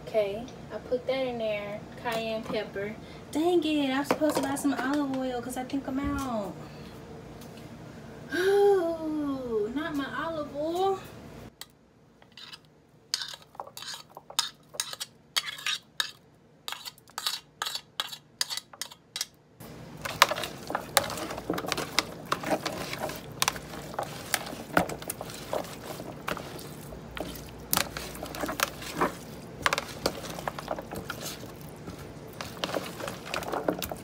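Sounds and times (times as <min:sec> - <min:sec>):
hands squishing meat in plastic tub: 0:20.0 - 0:34.0.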